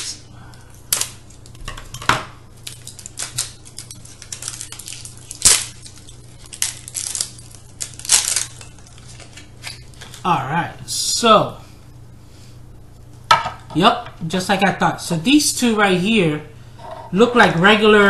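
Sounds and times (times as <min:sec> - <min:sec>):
scissors cutting packaging: 0:02.6 - 0:09.8.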